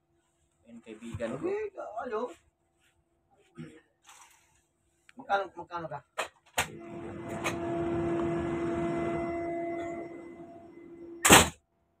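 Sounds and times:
mechanical hum with rushing air: 6.6s - 11.5s.

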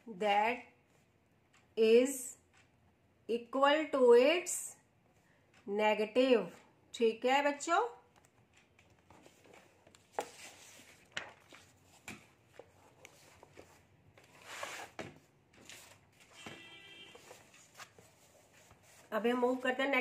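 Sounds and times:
paper rustling: 9.0s - 19.6s.

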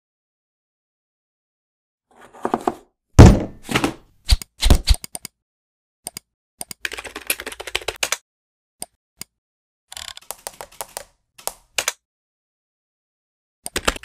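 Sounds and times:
keyboard typing clicks: 6.1s - 8.2s, 13.7s - 14.0s.

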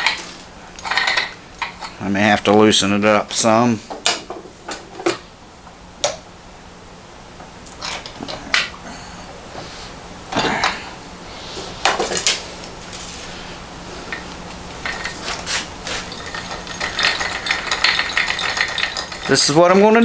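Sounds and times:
metal clinks and rattles: 14.8s - 19.8s.

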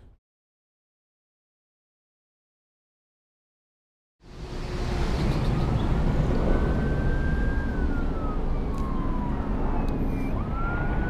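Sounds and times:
distant siren wailing: 4.4s - 11.0s.

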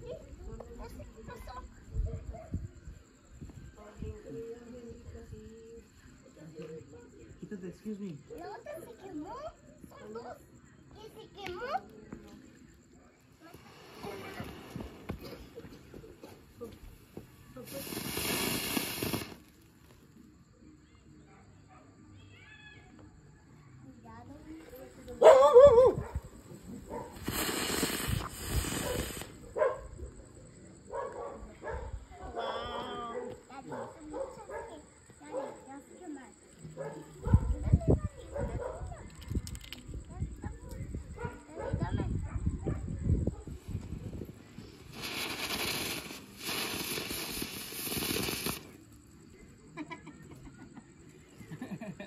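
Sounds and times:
ground firework hissing: 11.0s - 20.4s, 26.0s - 30.6s, 43.2s - 49.4s.

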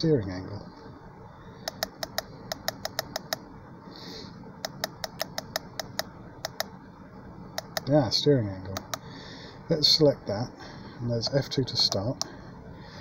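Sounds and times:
button clicks: 4.6s - 6.7s, 8.7s - 9.0s.

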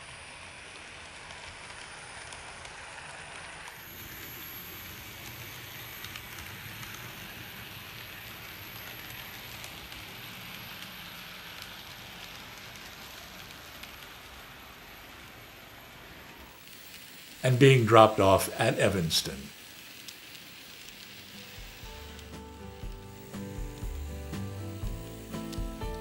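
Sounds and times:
model train wheels clattering: 0.0s - 17.4s, 19.3s - 25.7s.

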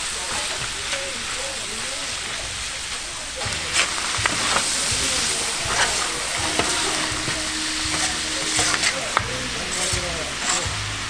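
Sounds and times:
meat sizzling on griddle: 0.0s - 11.0s
metal spatula scraping griddle: 2.9s - 11.0s.

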